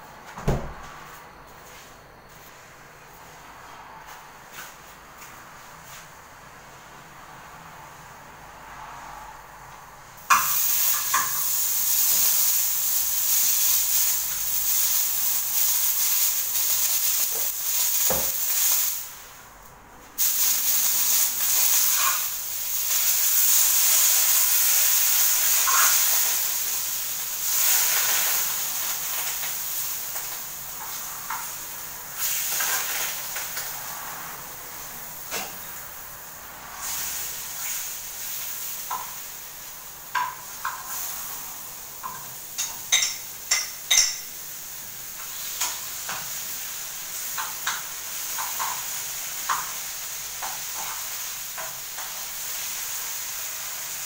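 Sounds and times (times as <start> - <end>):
steak sizzling in a frying pan: 10.3 - 19.2, 20.2 - 33.7, 36.8 - 54.0.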